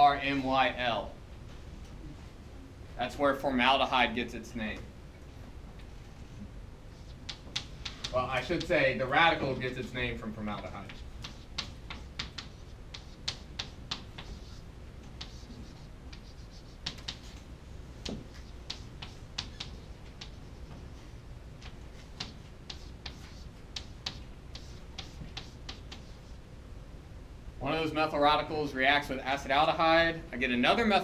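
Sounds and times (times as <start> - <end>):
low room hum: 0.0 - 31.0
chalk tapping on chalkboard: 7.0 - 8.7, 10.6 - 14.6, 15.2 - 17.4, 18.0 - 20.9, 21.6 - 26.3.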